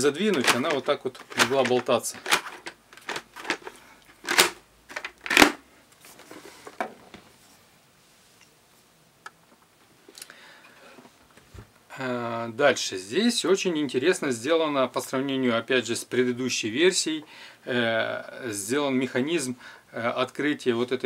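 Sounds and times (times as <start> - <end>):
rustling: 0.0 - 8.9
plastic helmet knocks and clatter: 0.2 - 5.6.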